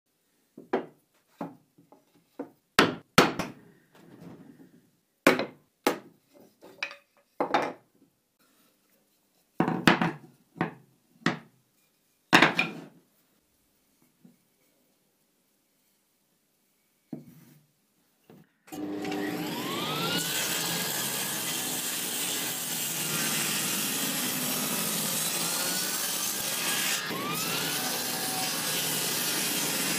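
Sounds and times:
soft wooden scrape: 8.4s - 9.6s, 15.6s - 17.7s.

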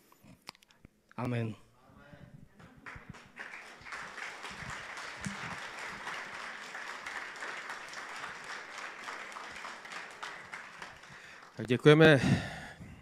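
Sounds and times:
congregation applauding: 2.6s - 12.3s.

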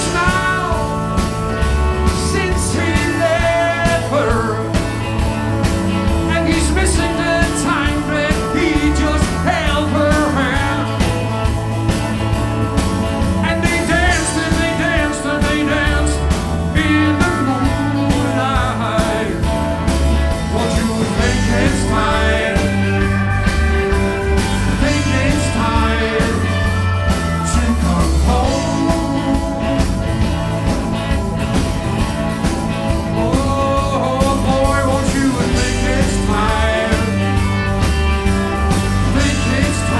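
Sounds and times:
man singing: 0.0s - 5.1s, 6.2s - 11.2s, 13.4s - 19.6s, 20.3s - 23.3s, 24.6s - 29.9s, 33.0s - 37.6s, 39.0s - 39.9s
live rock band playing: 0.0s - 39.9s.

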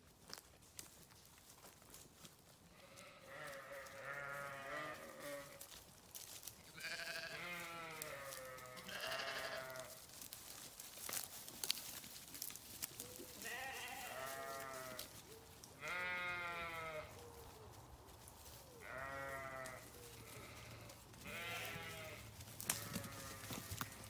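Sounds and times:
sheep bleating: 2.7s - 5.6s, 6.7s - 10.0s, 13.4s - 15.1s, 15.8s - 17.1s, 18.8s - 24.0s.

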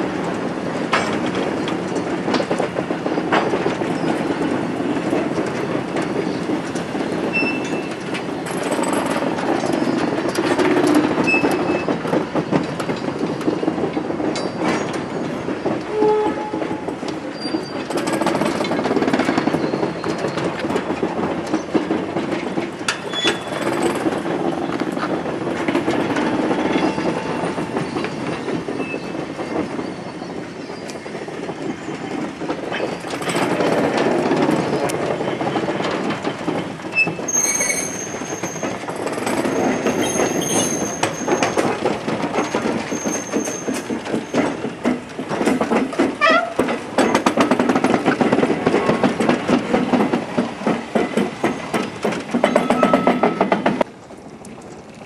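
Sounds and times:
train rolling past: 0.0s - 55.0s
wheel clicks over rail joints: 0.2s - 29.8s, 32.1s - 55.0s
high-pitched wheel squeals: 37.0s - 38.8s.

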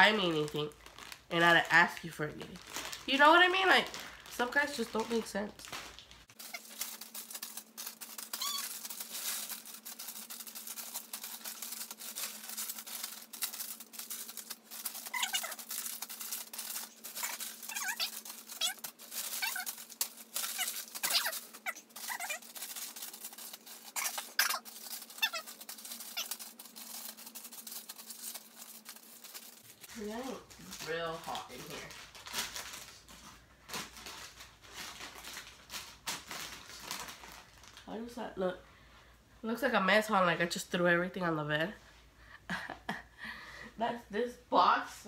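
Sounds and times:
plastic bags crinkling: 0.0s - 38.1s
short high squeaks: 8.1s - 9.0s.

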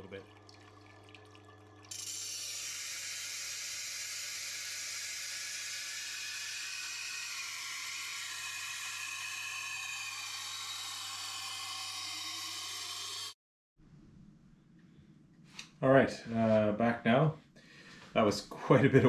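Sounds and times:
knife grinding on wheel: 1.9s - 13.4s.

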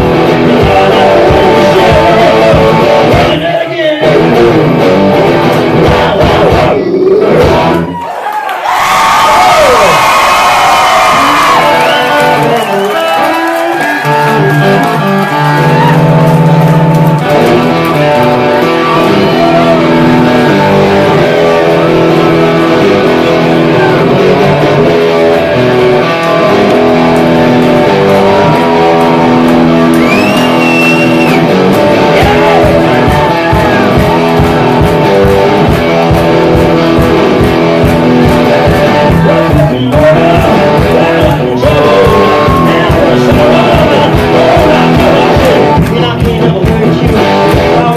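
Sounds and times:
electric guitar chords: 0.0s - 8.0s, 9.7s - 47.9s
steady low beat: 31.4s - 47.8s.

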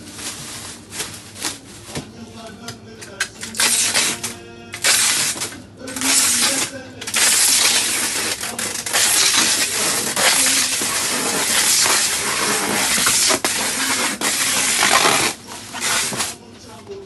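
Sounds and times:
plastic crinkling: 0.0s - 2.0s, 3.4s - 16.3s
packing tape pulled off dispenser: 3.1s - 16.4s.

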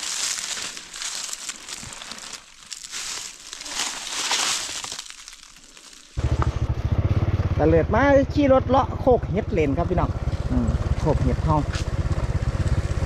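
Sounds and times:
plastic bag crinkling: 0.0s - 6.2s
motorcycle engine running: 6.2s - 13.0s.

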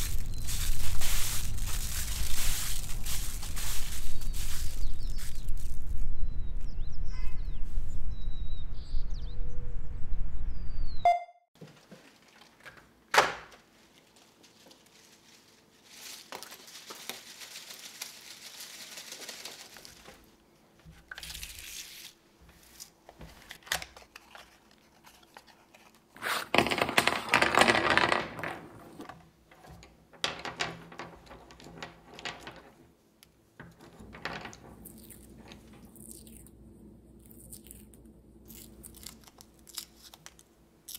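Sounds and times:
paper tearing: 0.0s - 5.8s, 21.2s - 22.2s
paper crinkling and rustling: 0.0s - 6.0s, 13.6s - 26.6s, 38.5s - 40.9s
paper wrappers peeled off crayons: 0.0s - 6.0s, 13.9s - 20.3s, 21.1s - 26.6s, 37.2s - 40.9s
wind rumbling on microphone: 0.0s - 11.0s.

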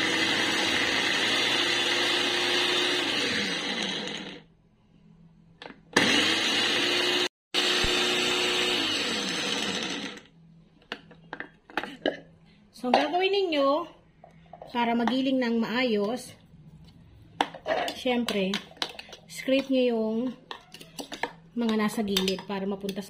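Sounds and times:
food processor whirring: 0.0s - 4.4s, 6.0s - 10.3s.

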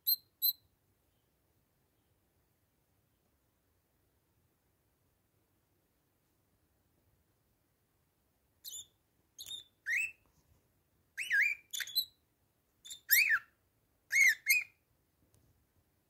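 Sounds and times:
parakeet chirping: 8.6s - 10.2s, 11.2s - 12.2s, 12.8s - 13.5s, 14.1s - 14.8s.

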